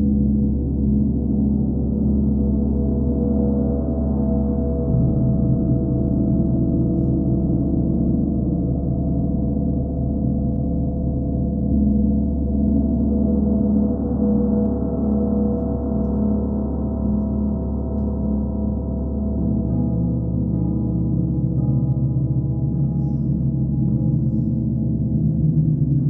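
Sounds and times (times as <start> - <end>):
large gongs ringing: 13.4 - 26.0.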